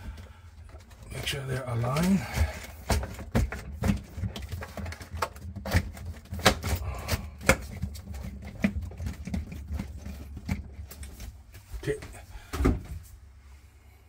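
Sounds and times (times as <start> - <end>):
plastic parts clicking and knocking: 0.1 - 11.2.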